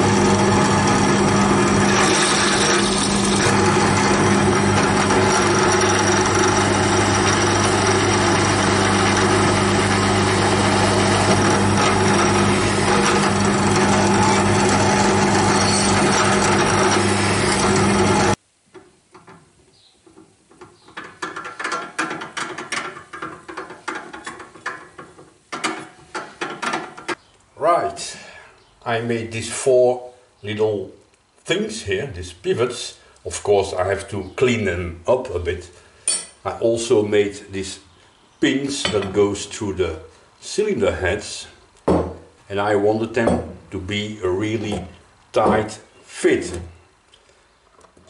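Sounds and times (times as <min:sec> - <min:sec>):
drill cutting into steel: 0:00.0 - 0:18.4
drill press motor hum: 0:00.0 - 0:18.4.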